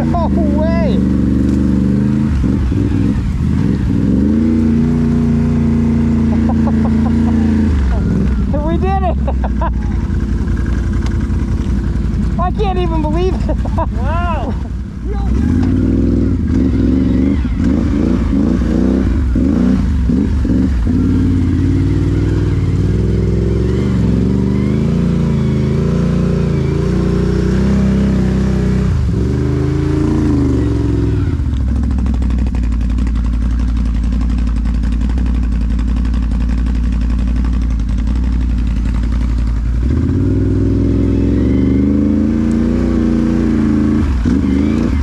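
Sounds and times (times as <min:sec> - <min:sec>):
atv engine revving: 0:00.0 - 0:45.0.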